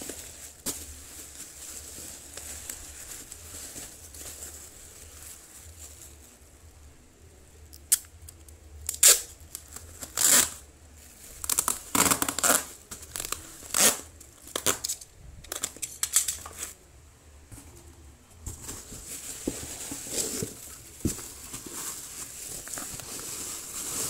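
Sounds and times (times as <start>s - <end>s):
bubble wrap crinkling: 0.0s - 6.9s, 7.8s - 16.8s, 17.8s - 24.0s
packing tape ripping off roll: 8.8s - 10.6s, 11.4s - 16.8s.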